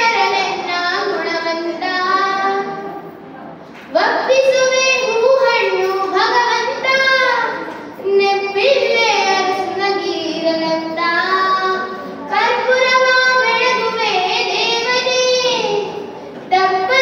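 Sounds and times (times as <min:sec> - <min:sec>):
girl singing into microphone: 0:04.0 - 0:17.0.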